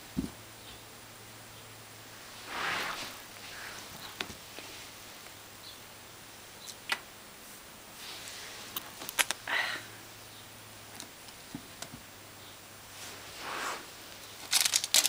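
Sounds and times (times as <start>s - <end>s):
fabric rustling on carpet: 2.2s - 5.1s, 8.0s - 8.7s, 12.9s - 14.1s.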